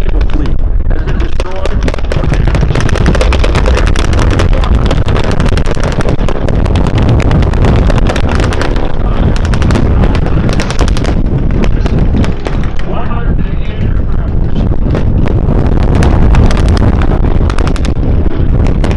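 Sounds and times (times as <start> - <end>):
rapid machine-gun fire: 0.0 - 13.1, 14.8 - 18.9
low-flying aircraft engines rumbling: 0.0 - 18.9
pyrotechnic explosions: 0.0 - 18.9
wind on microphone: 0.0 - 18.9.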